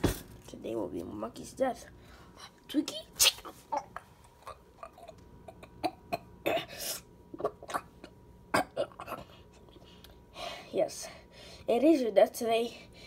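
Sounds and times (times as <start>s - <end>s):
person coughing and throat-clearing: 3.8s - 9.5s.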